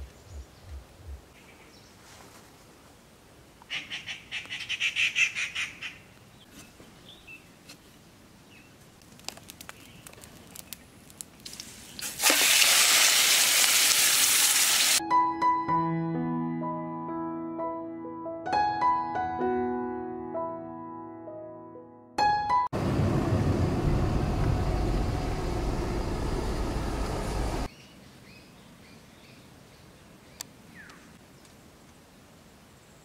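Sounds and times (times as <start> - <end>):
bird rapid repeated call: 3.7 - 6.1
loud steady rushing noise: 22.8 - 27.7.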